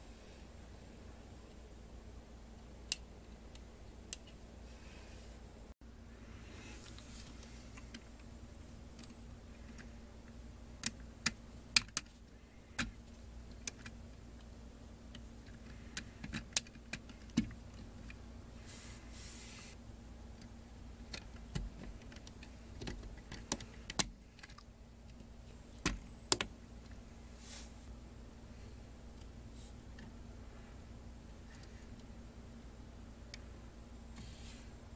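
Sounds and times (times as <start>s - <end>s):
plastic parts clicking together: 10.8s - 12.1s, 20.4s - 27.0s.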